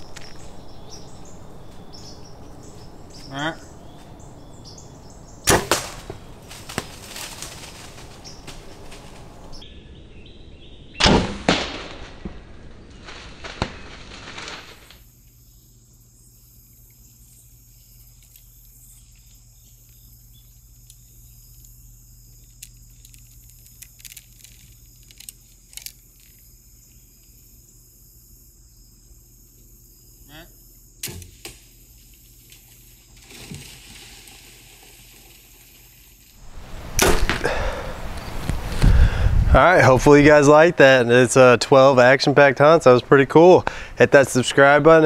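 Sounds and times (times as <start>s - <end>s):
rustling hiss: 0.0s - 9.6s, 12.8s - 30.2s, 30.8s - 42.5s
steady low hum: 0.0s - 10.4s
cracks: 5.4s - 9.6s, 11.0s - 15.0s, 19.1s - 26.5s, 36.3s - 39.0s.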